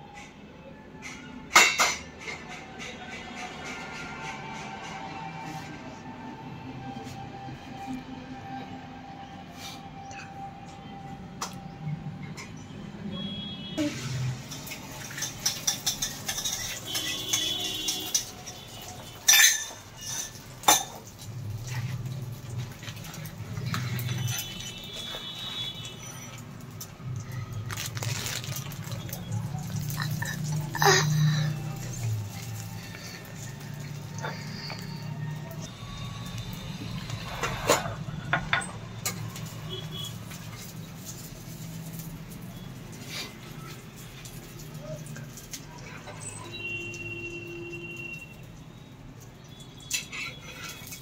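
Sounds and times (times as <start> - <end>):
spoon clinking against frying pan: 15.0 - 21.1.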